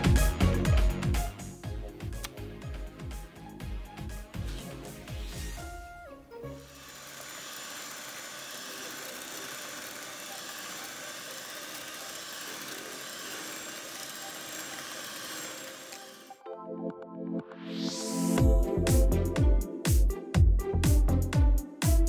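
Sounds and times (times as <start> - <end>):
electric hand mixer whipping cream: 6.6 - 16.4.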